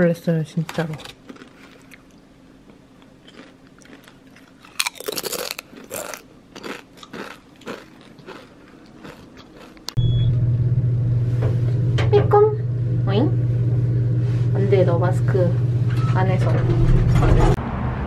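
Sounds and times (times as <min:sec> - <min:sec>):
crunching chips: 0:00.6 - 0:10.0
loud low rumble: 0:10.0 - 0:18.0.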